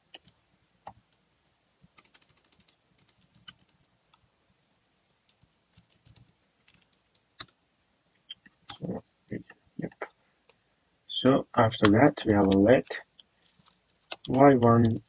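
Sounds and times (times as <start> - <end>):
faint keyboard typing: 0.0 - 1.2, 1.8 - 4.3, 5.0 - 7.6, 8.3 - 9.0, 11.8 - 15.0.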